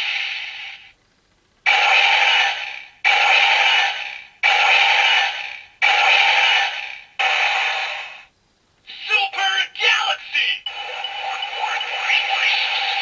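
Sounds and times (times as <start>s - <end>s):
toy electronic sound effect: 8.9s - 13.0s.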